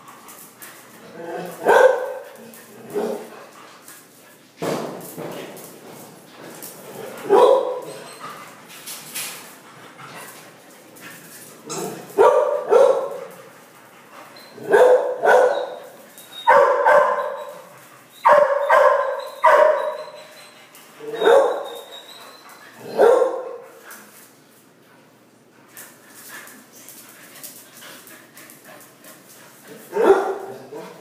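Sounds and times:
dogs barking in play: 0.0 - 4.2, 6.4 - 8.7, 9.9 - 24.1, 25.9 - 31.0.

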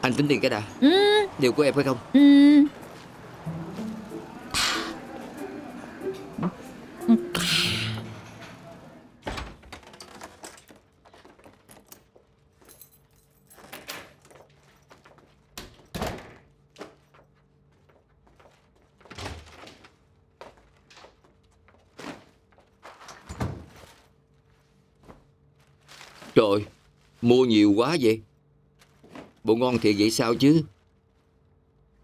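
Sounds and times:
shopping bags rustling: 16.5 - 32.0.

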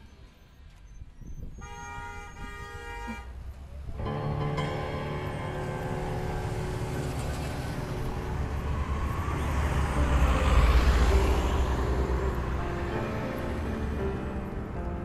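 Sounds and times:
vehicle passing by: 4.5 - 15.0.

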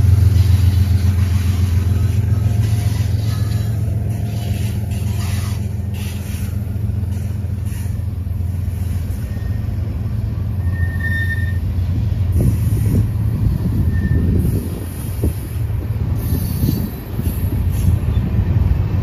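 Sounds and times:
low vehicle rumble: 0.0 - 19.0
high squeal tone: 8.9 - 11.8, 13.6 - 14.6.

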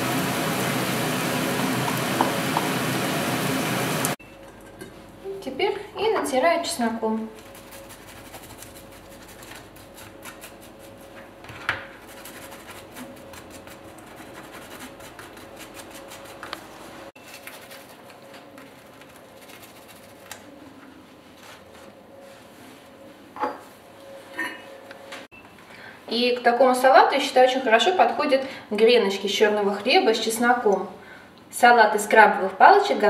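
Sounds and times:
steady hum: 0.0 - 17.2
garlic scraping on toasted bread: 7.4 - 11.0.

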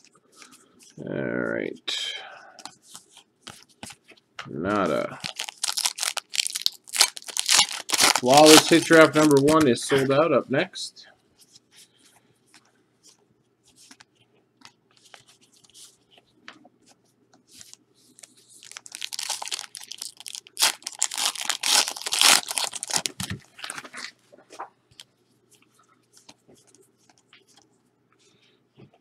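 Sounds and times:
card packaging tearing and crinkling: 4.9 - 9.9, 18.6 - 24.1.

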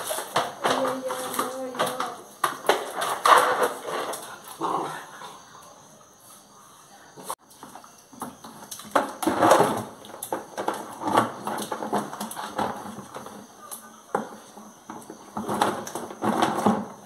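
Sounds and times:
plastic bucket clattering on concrete: 0.0 - 4.4, 7.6 - 13.5, 14.1 - 17.0.

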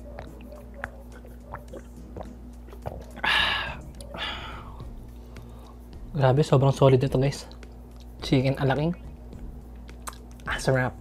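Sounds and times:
person gulping water: 0.2 - 4.5.

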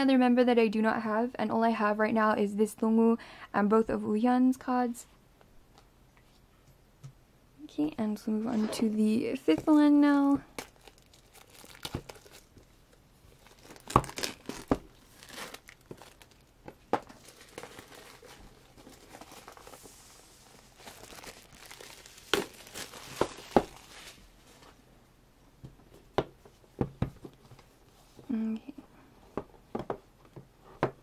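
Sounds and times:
shrink-wrap tearing and crinkling: 10.5 - 12.7, 13.3 - 24.3.

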